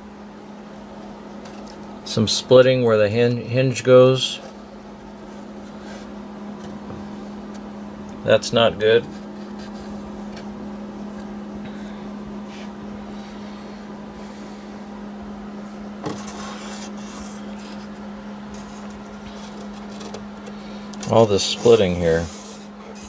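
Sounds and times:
steady low hum: 0:00.0 - 0:23.0
rustling and scraping of clock case: 0:09.0 - 0:10.5, 0:16.0 - 0:23.0.

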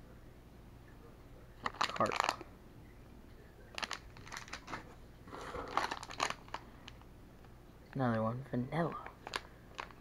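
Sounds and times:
plastic bags crinkling: 0:01.6 - 0:02.4, 0:03.7 - 0:07.0, 0:08.8 - 0:10.0.

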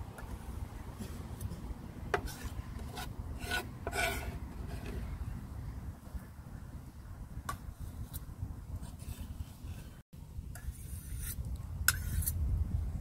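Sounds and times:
steady low rumble: 0:00.0 - 0:13.0
knife scraping wooden board: 0:02.2 - 0:05.1, 0:10.6 - 0:12.4.

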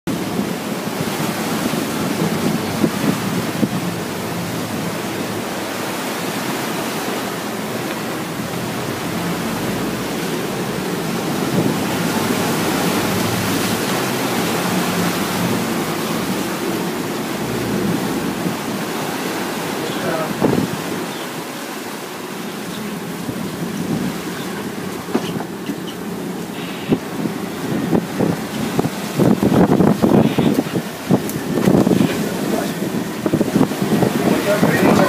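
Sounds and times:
boat wake rushing: 0:00.0 - 0:35.0
wind buffeting microphone: 0:00.1 - 0:35.0
low engine drone: 0:00.2 - 0:20.4.

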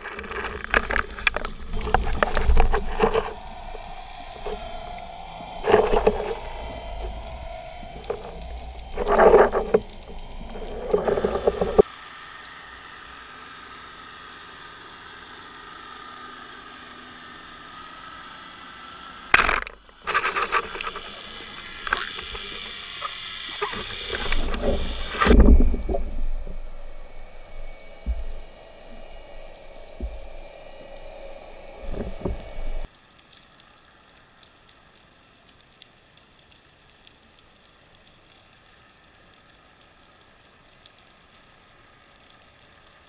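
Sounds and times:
churning water and splashing: 0:00.0 - 0:11.8, 0:19.3 - 0:32.9
water rushing past: 0:00.0 - 0:11.8
steady underwater hum: 0:00.0 - 0:43.0.

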